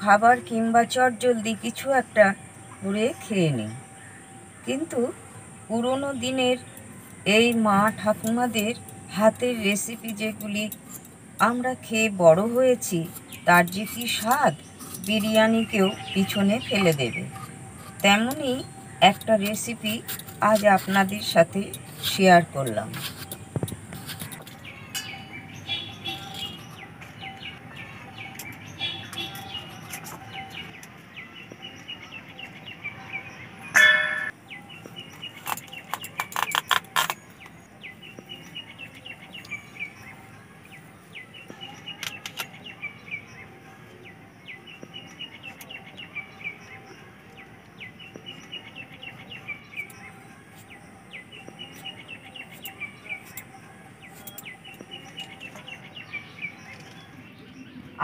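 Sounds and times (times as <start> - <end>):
small birds chirping: 0.0 - 58.0
loud short ringing: 33.7 - 34.3.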